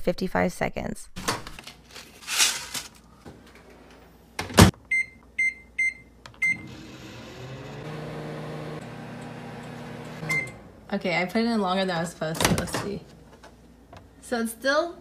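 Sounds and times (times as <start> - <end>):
paper bag rustling: 1.6 - 3.1
microwave humming: 3.2 - 12.8
keypad beeps: 4.9 - 6.6.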